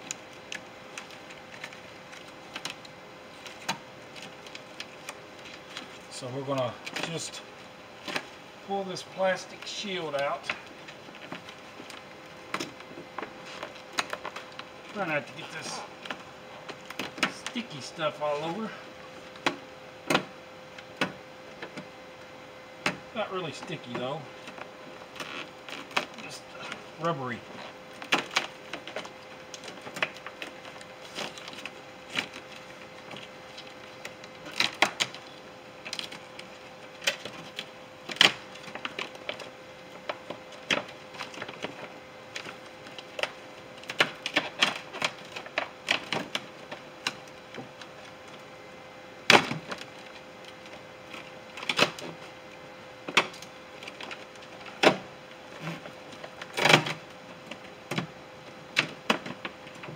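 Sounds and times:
plastic sheet crinkling: 23.4s - 48.4s.

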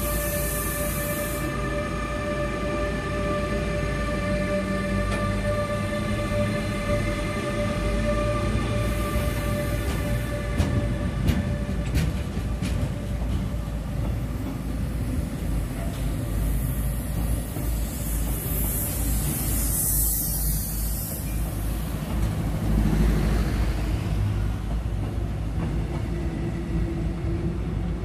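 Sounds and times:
train wheels rumbling on rails: 0.0s - 28.0s
high hiss: 17.8s - 21.9s.

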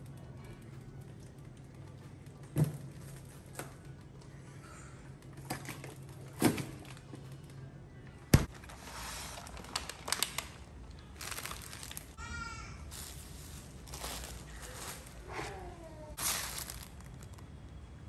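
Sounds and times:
refrigerator humming: 0.0s - 18.0s
plastic groceries rustling: 8.4s - 12.2s, 12.8s - 18.0s.

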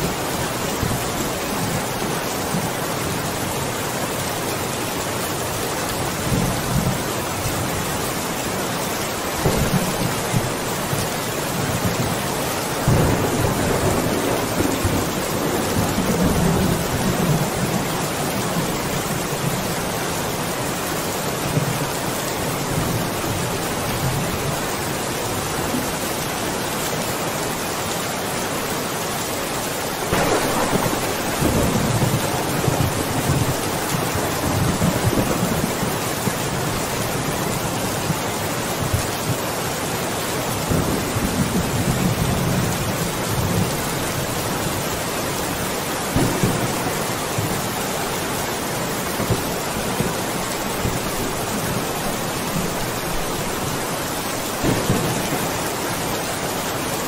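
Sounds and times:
steady rain falling: 0.0s - 57.0s
thunder rumbling: 9.4s - 12.2s, 12.8s - 18.8s, 30.0s - 37.3s, 46.1s - 48.4s, 54.5s - 56.4s.

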